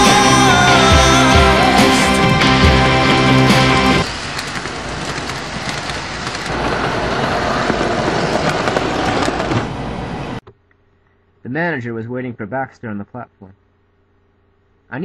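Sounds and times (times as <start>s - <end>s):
model train rumbling on track: 3.1s - 10.4s.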